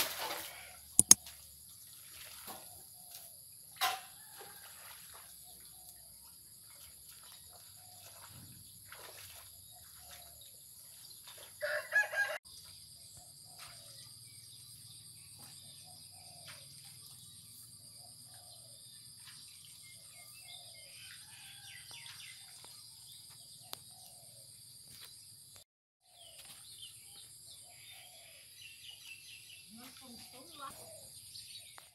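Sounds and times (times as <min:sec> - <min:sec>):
rooster crowing: 0:11.6 - 0:12.4.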